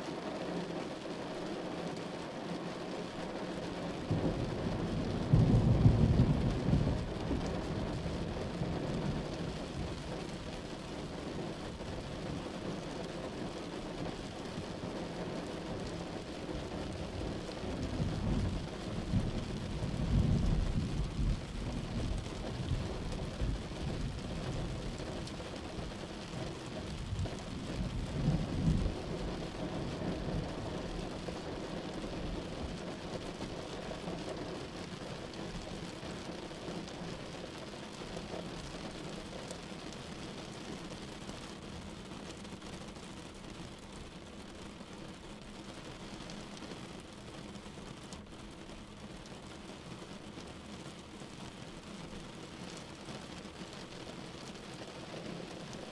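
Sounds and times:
rain hissing: 0.0 - 55.9
thunder rolling: 4.1 - 7.6.

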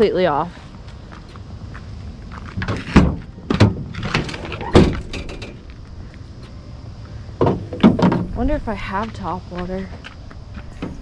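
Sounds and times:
tailgate clunks and knocks: 2.6 - 5.6, 7.4 - 8.4, 10.8 - 11.0.

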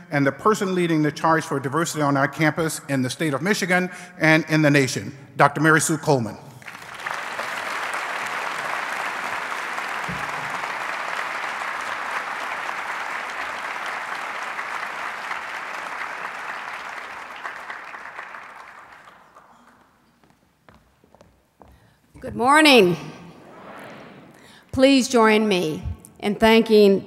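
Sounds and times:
audience applauding: 6.6 - 20.2.

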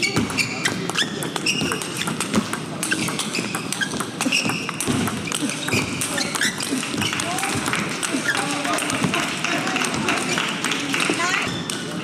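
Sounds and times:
shoes squeaking on floor: 0.0 - 8.8.

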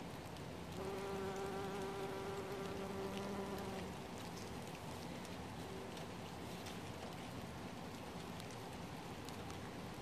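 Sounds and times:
raindrops ticking: 0.0 - 10.0
bumblebee buzzing: 0.8 - 3.9.

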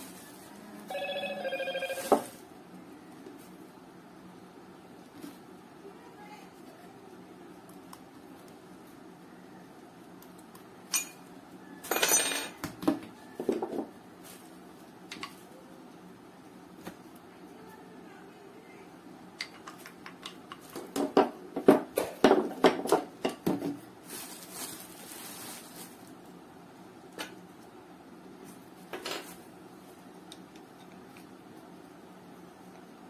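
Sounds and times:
bubble wrap crinkling: 0.0 - 0.9, 14.2 - 15.0, 23.9 - 26.4.

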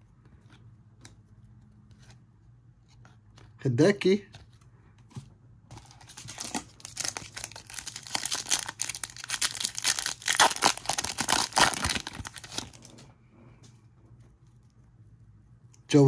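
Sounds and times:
wrapper crinkling and tearing: 5.8 - 13.0.

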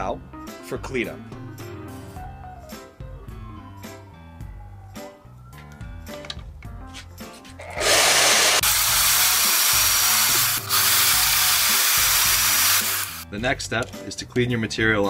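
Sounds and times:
power saw cutting metal: 7.6 - 13.2.

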